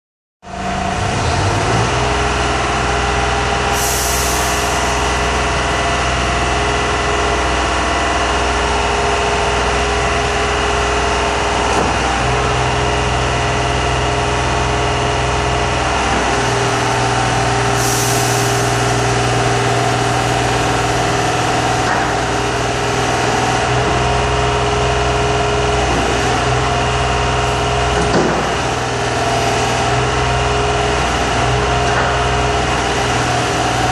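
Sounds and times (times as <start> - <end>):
hydraulic engine and pump hum: 0.5 - 33.9
short air hisses: 3.7 - 5.7, 17.7 - 19.2.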